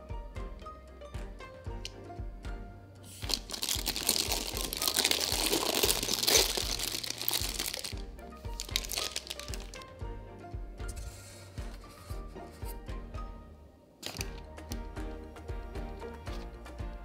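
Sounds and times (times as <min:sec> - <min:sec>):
background music with steady beat: 0:00.0 - 0:17.0
plastic piping bag crinkling: 0:03.2 - 0:09.8, 0:14.0 - 0:14.4.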